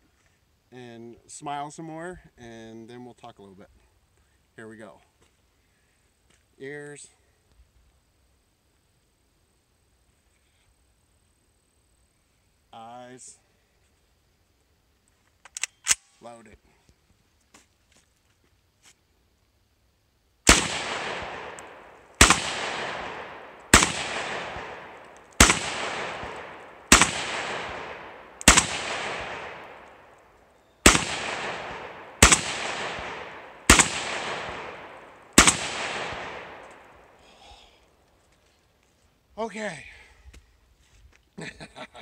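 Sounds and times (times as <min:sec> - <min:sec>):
rifle shots echoing: 0:20.5 - 0:37.2.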